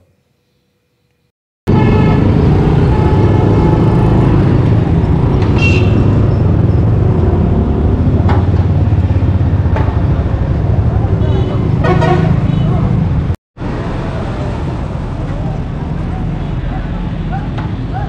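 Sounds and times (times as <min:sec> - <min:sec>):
vehicle horn honking: 0:01.7 - 0:03.7, 0:05.6 - 0:06.1, 0:11.2 - 0:12.8
motorcycle engine and road rumble: 0:01.7 - 0:18.0.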